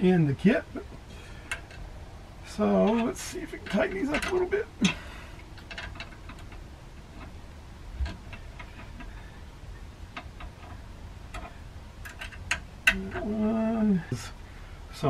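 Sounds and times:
allen wrench clicking on screws: 2.8 - 4.5, 5.4 - 7.4, 10.2 - 13.3.

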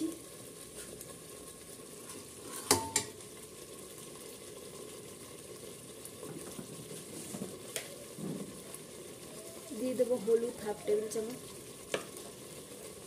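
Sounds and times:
paste sizzling and bubbling in oil: 0.0 - 13.0
steel ladle stirring: 2.1 - 3.1
ladle knocking against pot: 2.7 - 3.1.

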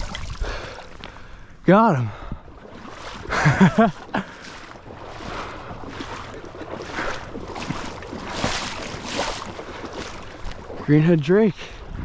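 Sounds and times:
footsteps sloshing through water: 0.0 - 12.0
man's wordless exclamation: 1.6 - 2.2
wind on microphone: 11.8 - 12.0.

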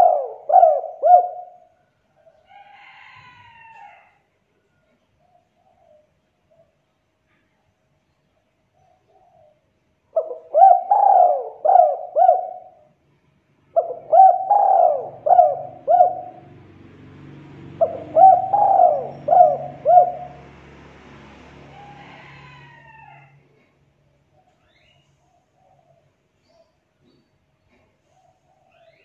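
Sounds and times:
dove cooing: 0.0 - 2.4, 8.9 - 13.0, 13.7 - 16.7, 17.6 - 20.6.

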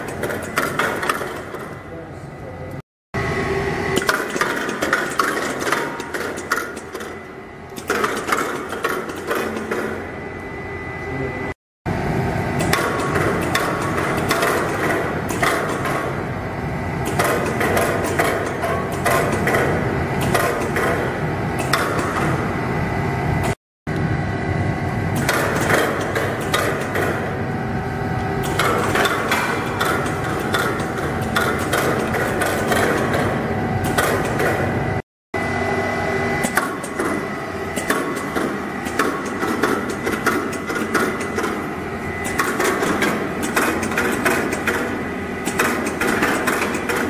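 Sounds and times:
mechanism clicking and clacking: 0.0 - 1.8, 4.0 - 10.0, 12.6 - 16.2, 17.0 - 22.4, 25.2 - 27.3, 28.4 - 34.7, 36.4 - 47.0
conveyor belts whining: 0.0 - 47.0.

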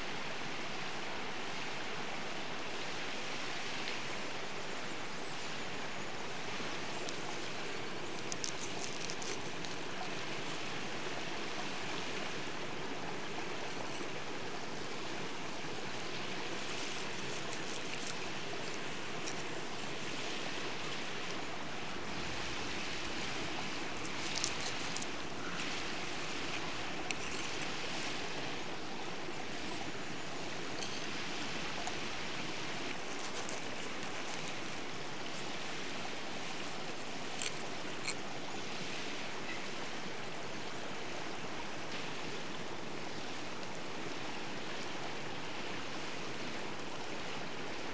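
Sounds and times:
stream rushing: 0.0 - 47.9
knife crunching through bread: 8.2 - 9.9, 16.6 - 19.5, 24.0 - 25.1, 32.9 - 34.8, 36.5 - 38.2.

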